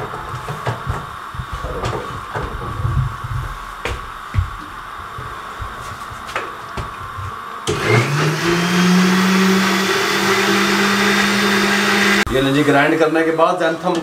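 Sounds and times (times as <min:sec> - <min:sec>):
electric blender motor whine: 0:07.6 - 0:12.6.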